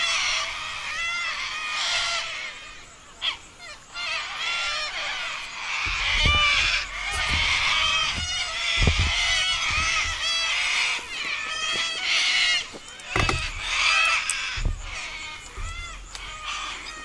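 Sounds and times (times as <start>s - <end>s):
flock of birds calling: 0.0s - 17.0s
low thumps: 5.8s - 10.6s, 13.1s - 17.0s.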